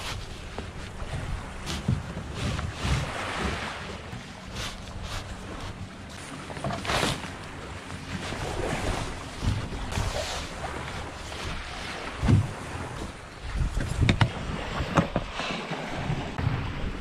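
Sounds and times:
tarp rustling and crinkling: 0.0s - 13.2s
surf washing: 0.0s - 17.0s
wind buffeting microphone: 0.0s - 17.0s.

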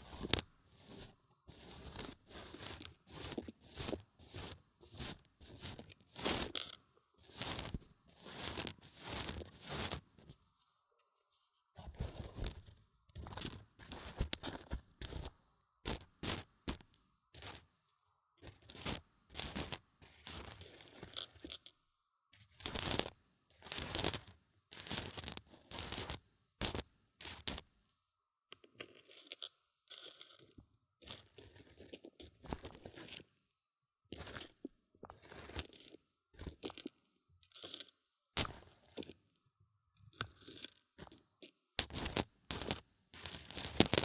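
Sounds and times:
beans crunching against microphone: 0.0s - 10.0s, 41.8s - 44.0s.

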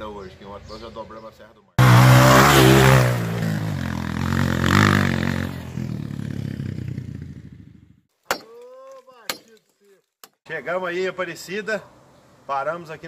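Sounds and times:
motorcycle engine revving: 1.8s - 8.0s.

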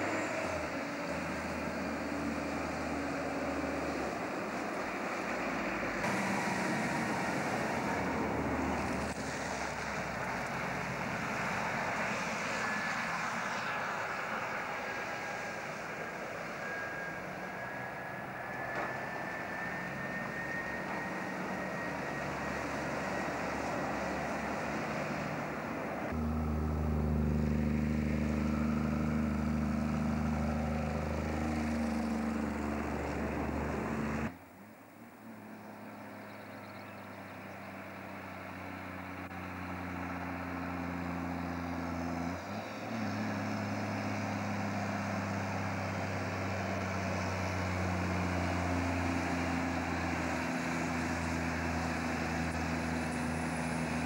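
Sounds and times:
thin whine: 0.0s - 34.4s
diesel truck engines under load: 0.0s - 54.0s.

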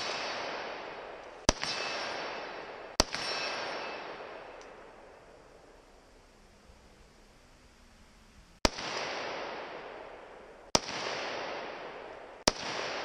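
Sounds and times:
gunshots echoing: 0.0s - 5.4s, 8.6s - 13.0s.

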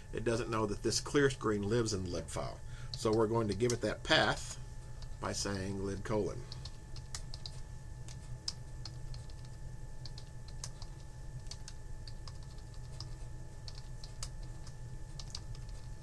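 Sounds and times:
faint steady hum: 0.0s - 16.0s
keyboard typing: 5.9s - 16.0s.

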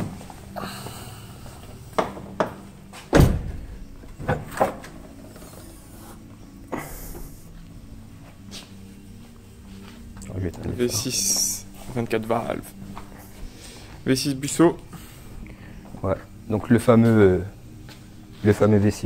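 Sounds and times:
heavy bonnet thud: 3.1s - 4.5s.

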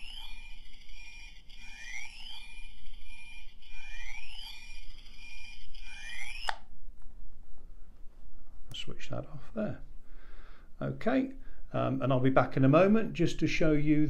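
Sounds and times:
steady electronic tone: 0.0s - 6.7s.

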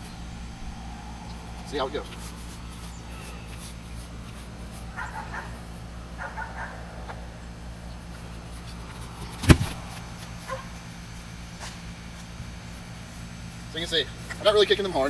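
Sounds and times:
foot kicking football: 8.9s - 10.8s.

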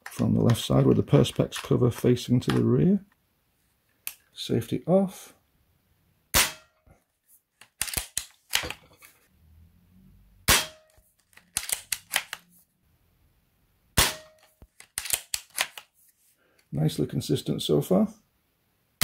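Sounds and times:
air rifle shots: 6.4s - 6.7s, 10.5s - 10.8s, 14.0s - 14.4s
rifle bolt metallic clicks: 7.6s - 8.8s, 11.3s - 12.4s, 14.3s - 15.9s.

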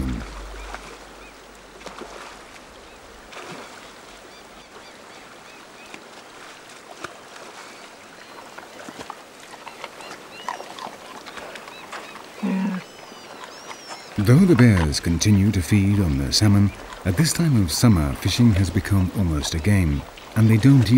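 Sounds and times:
sharp splashes: 0.0s - 3.8s
river water over stones: 0.0s - 20.9s.

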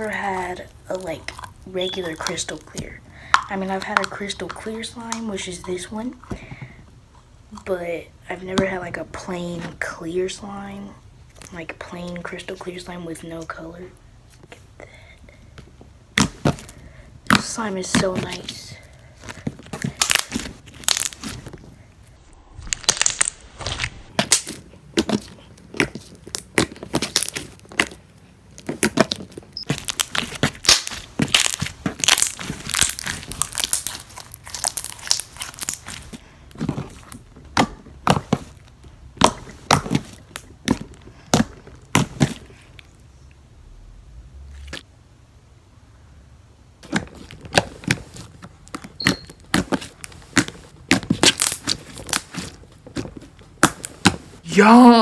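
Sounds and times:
slime squishing with clicks and pops: 0.0s - 6.0s, 19.5s - 21.6s, 22.6s - 43.1s, 46.8s - 54.2s.

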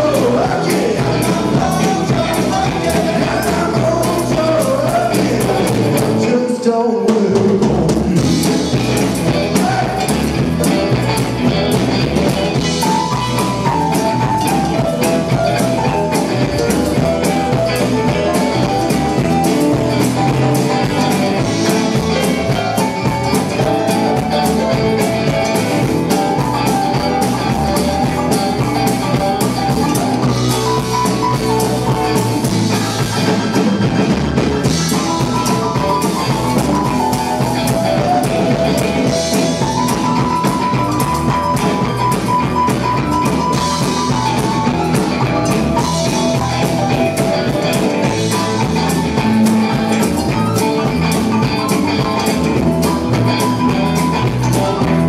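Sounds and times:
drum kit steady beat: 0.0s - 6.4s, 7.1s - 55.0s
electric guitars: 0.0s - 55.0s.

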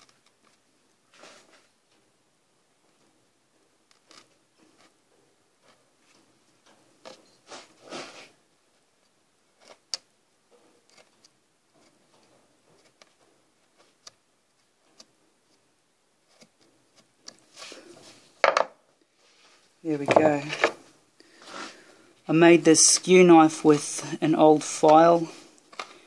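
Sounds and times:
carving tool scraping wood: 3.9s - 5.0s, 9.6s - 10.0s, 10.8s - 14.1s, 16.2s - 17.9s.

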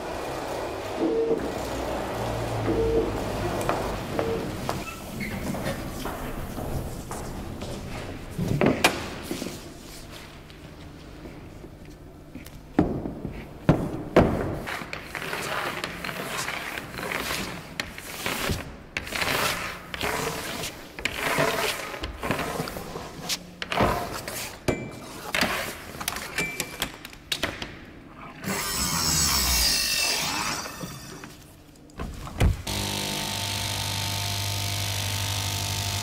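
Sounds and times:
machine humming: 32.6s - 36.0s.

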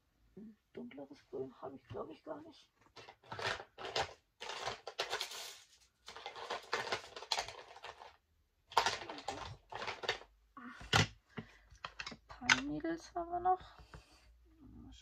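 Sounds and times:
containers and packaging clattering: 2.8s - 12.8s.

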